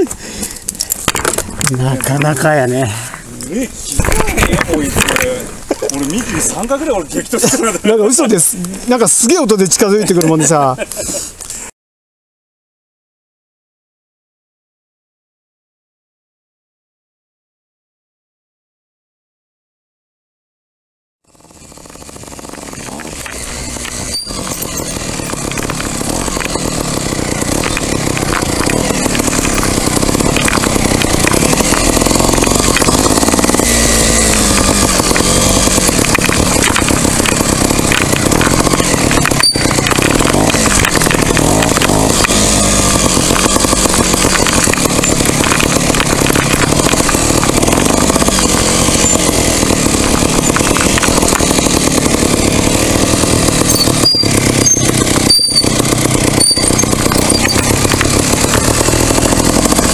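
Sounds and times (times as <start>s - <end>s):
motorcycle engine revving: 21.3s - 59.9s.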